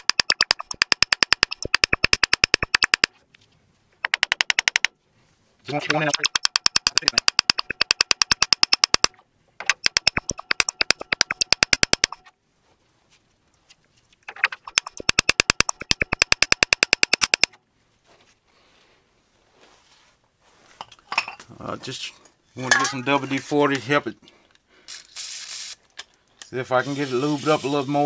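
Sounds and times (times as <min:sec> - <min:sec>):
hammer tapping on metal: 0:05.9 - 0:12.2.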